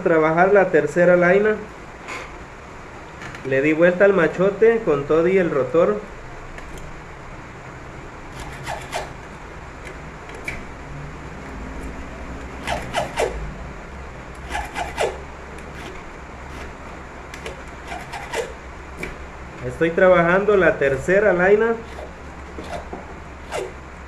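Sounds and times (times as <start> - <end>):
hand file rasping on metal: 8.3 - 9.2, 12.6 - 13.4, 14.4 - 16.8, 17.4 - 18.6, 21.8 - 23.8.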